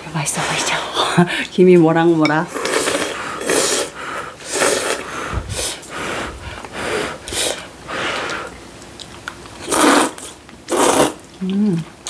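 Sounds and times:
noodles slurped: 2.5 - 12.0.

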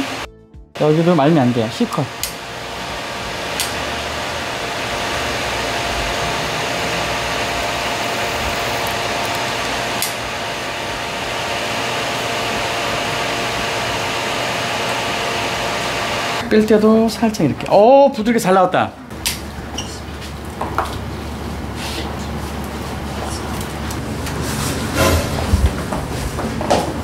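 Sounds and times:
hair dryer blowing: 0.0 - 16.4.

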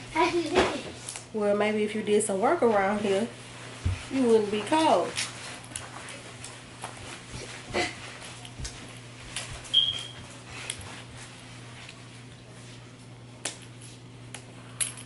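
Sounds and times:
low steady hum: 0.0 - 15.0
clothes rustling: 2.6 - 12.8.

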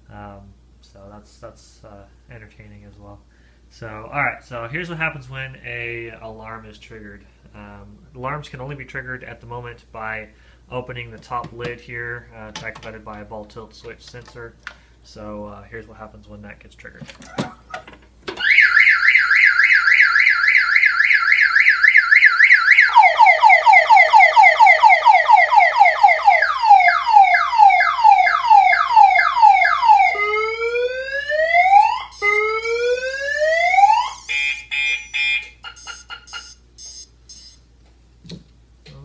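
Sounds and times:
car alarm siren: 18.4 - 37.6
rapid alarm beeps: 34.0 - 37.6
short alarm chirps: 34.0 - 37.6.

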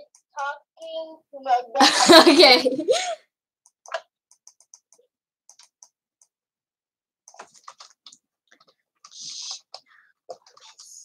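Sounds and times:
typing on computer keyboard: 3.7 - 6.0.

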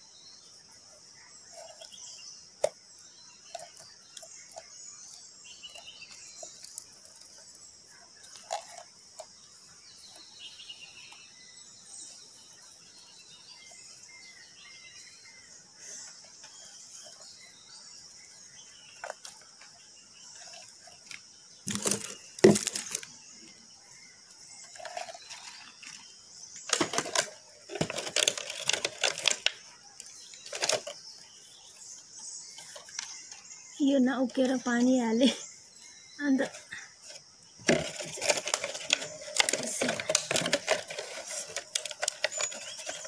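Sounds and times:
plastic scraping and crinkling: 3.4 - 10.5, 18.9 - 23.1, 24.6 - 31.2, 36.3 - 43.0.

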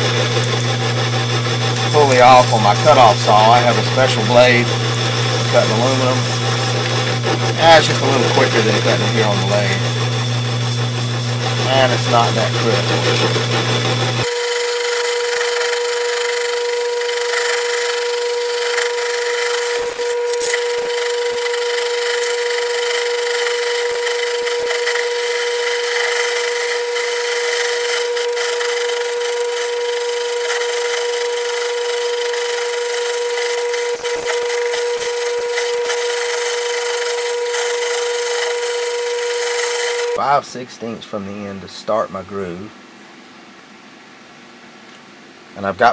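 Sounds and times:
metal lathe high-pitched hum: 0.0 - 40.2
hiss of metal cutting: 1.9 - 4.8, 7.0 - 9.9, 11.5 - 13.3.

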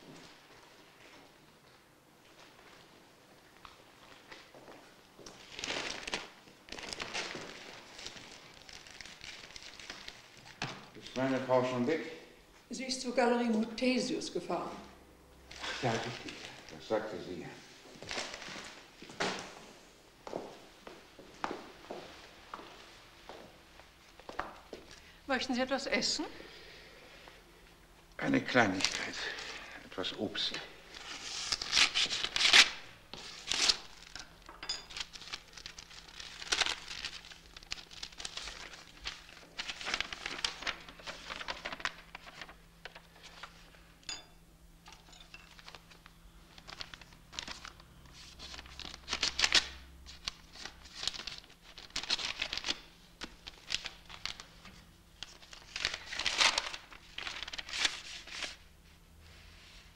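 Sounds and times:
envelope paper tearing and rustling: 5.4 - 10.8, 30.9 - 34.3, 34.9 - 43.5, 46.5 - 54.6, 55.2 - 58.6.

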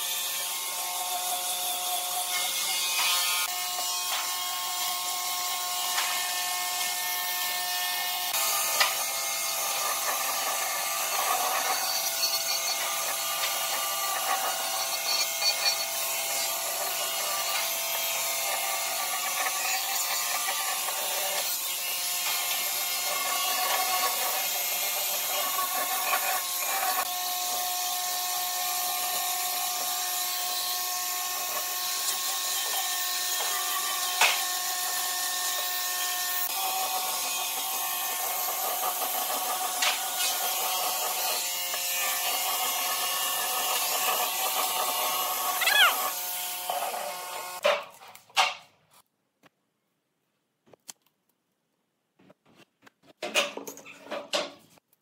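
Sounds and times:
power tool whining on wood: 0.0 - 47.6.

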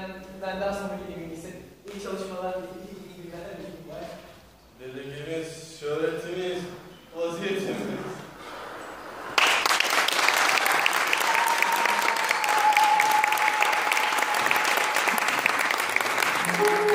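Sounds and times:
audience applauding: 9.3 - 16.9.

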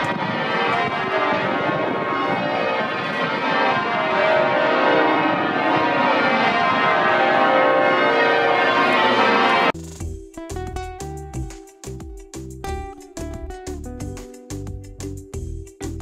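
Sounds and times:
church bells ringing: 0.0 - 9.8.

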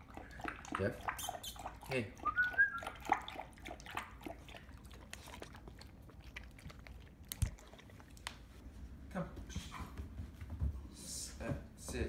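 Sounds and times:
puppy lapping water from bowl: 0.0 - 8.5.

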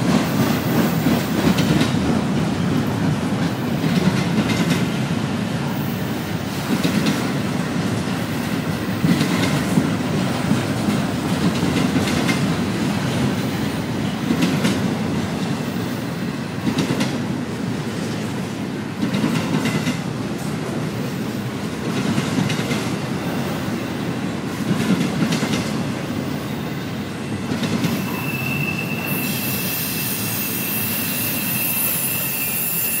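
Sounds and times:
freight train wheels rumbling on rail: 0.0 - 33.0
high-pitched wheel squeal: 28.0 - 33.0.

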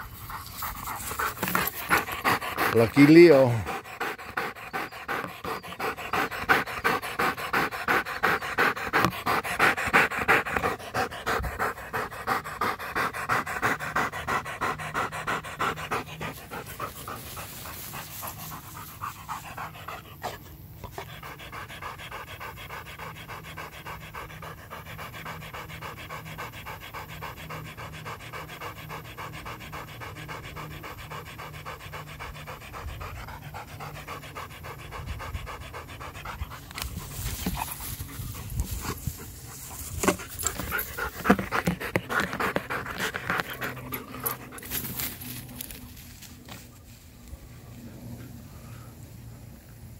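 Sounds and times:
dog panting hard: 0.0 - 46.7.

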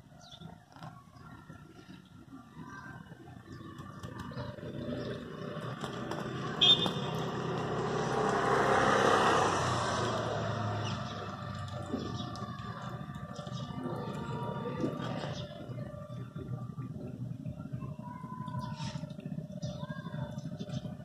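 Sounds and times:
vehicle passing by: 3.7 - 16.1.

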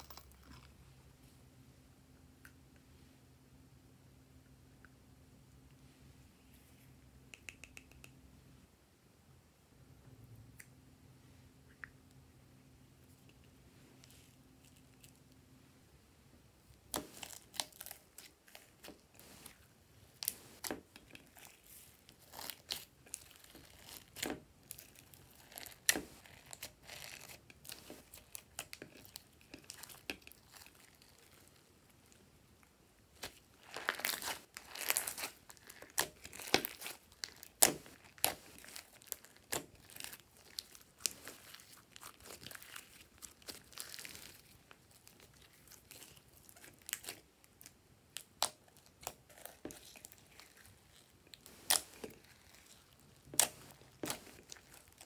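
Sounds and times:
hands squishing slime: 20.2 - 31.6, 33.2 - 55.0.

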